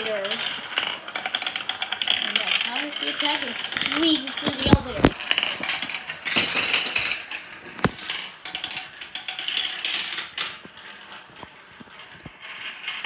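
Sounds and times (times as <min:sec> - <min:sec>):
marbles clattering on plastic track: 0:00.0 - 0:13.0.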